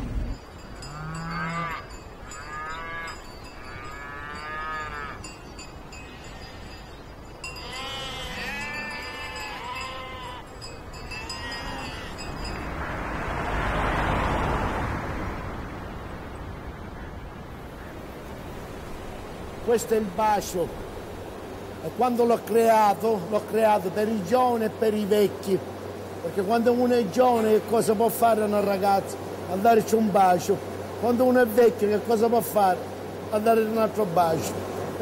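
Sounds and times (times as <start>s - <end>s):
sheep bleating: 7.6s - 10.5s, 11.2s - 12.3s.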